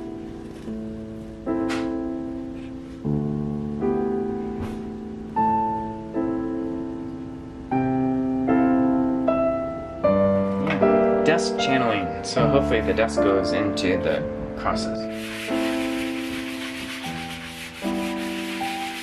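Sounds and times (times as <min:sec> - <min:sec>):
slow solo piano chords: 0:00.0 - 0:15.1.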